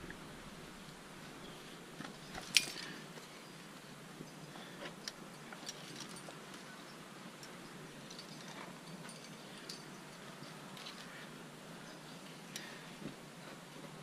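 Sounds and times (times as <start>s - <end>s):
faint steady hiss: 0.0s - 14.0s
climbing gear clinking: 2.0s - 12.8s.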